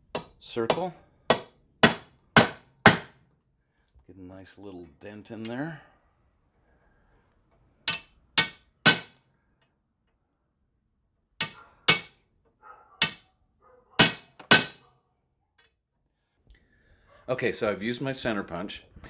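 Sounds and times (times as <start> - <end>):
hammer striking metal punch: 0.1 - 3.2, 7.8 - 9.2, 11.4 - 12.2, 13.0 - 13.2, 14.0 - 14.8.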